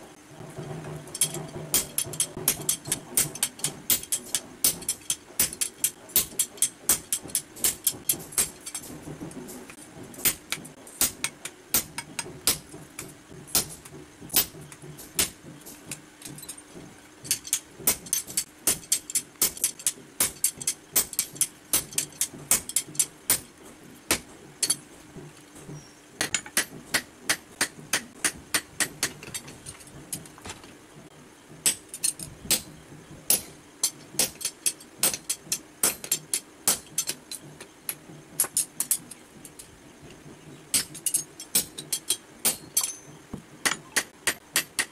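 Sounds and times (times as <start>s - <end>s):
hammer striking steel on anvil: 0.6s - 9.0s, 10.2s - 16.6s, 17.3s - 23.5s, 26.2s - 29.6s, 31.6s - 37.3s, 40.7s - 44.9s.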